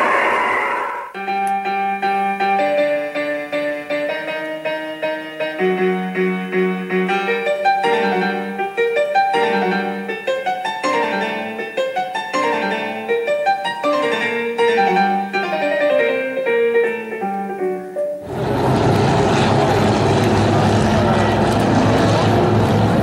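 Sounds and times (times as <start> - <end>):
piano music: 1.2 - 23.0.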